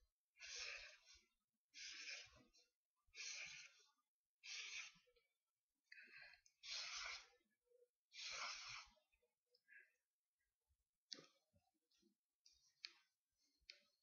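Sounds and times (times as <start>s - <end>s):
marker scratching on paper: 1.8s - 2.4s, 4.4s - 5.0s, 6.6s - 7.4s, 8.2s - 9.0s.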